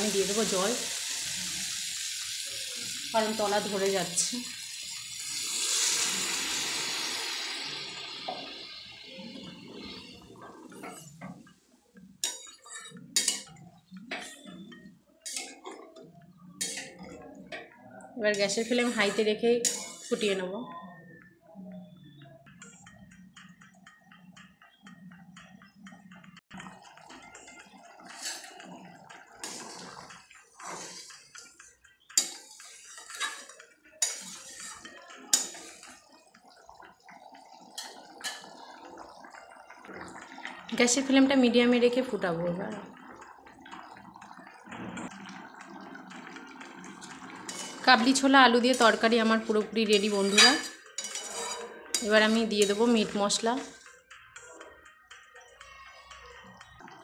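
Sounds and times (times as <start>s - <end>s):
spatula stirring curry: 0.2s - 20.4s, 22.1s - 57.0s
metal spatula scraping a pan: 8.2s - 11.6s, 12.2s - 15.9s, 16.6s - 17.1s, 18.3s - 20.4s, 26.6s - 36.1s, 46.9s - 54.0s
spatula clinking against pan: 19.6s - 20.1s, 47.5s - 47.9s, 49.9s - 53.9s.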